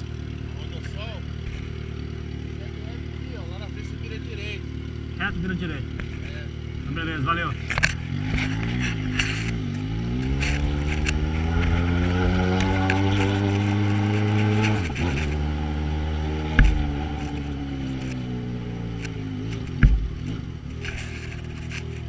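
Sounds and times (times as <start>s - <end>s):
motorcycle engine running: 0.0s - 22.0s
sharp knocks: 16.3s - 18.2s, 19.5s - 20.5s.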